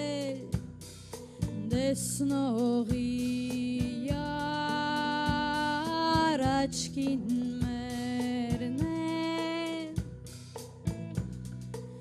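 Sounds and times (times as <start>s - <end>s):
woman singing: 0.0s - 0.6s, 1.4s - 10.1s
rock band playing: 10.0s - 12.0s.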